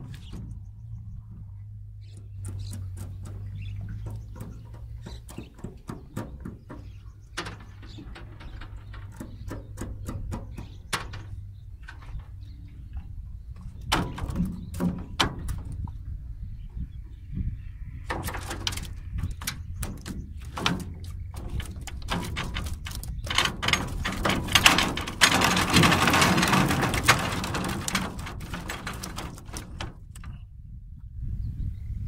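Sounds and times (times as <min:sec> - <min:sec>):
fish trap knocking and rattling: 0:02.4 - 0:12.4, 0:13.6 - 0:15.9, 0:18.1 - 0:30.4.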